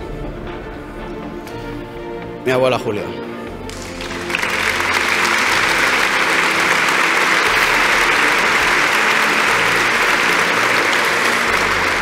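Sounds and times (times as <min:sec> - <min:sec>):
large audience applauding: 0:03.7 - 0:12.0.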